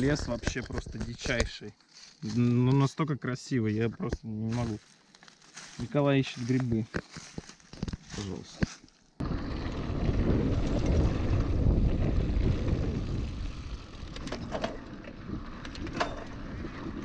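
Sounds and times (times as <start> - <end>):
bike tyres rumbling on dirt: 4.1 - 17.0
wind buffeting microphone: 9.2 - 17.0.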